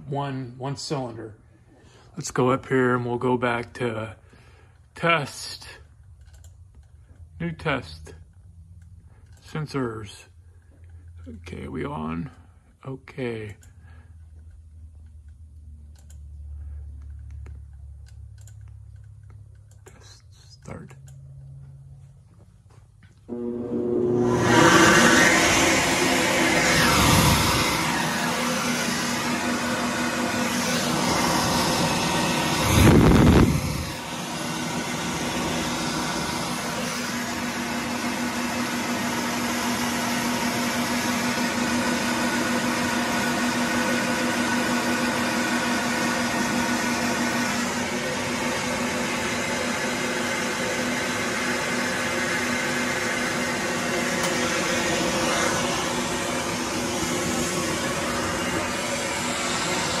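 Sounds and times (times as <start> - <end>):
steady hum: 5.6 - 43.1, 52.9 - 60.0
air rushing through exhaust port: 23.3 - 42.3, 52.2 - 60.0.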